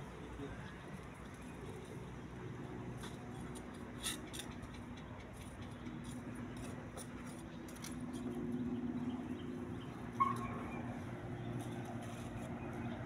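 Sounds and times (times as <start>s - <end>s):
distant helicopter droning: 0.0s - 13.0s.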